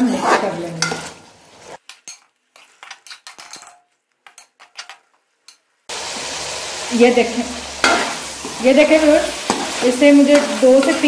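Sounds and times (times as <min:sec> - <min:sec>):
chicken frying in oil: 0:05.9 - 0:11.0.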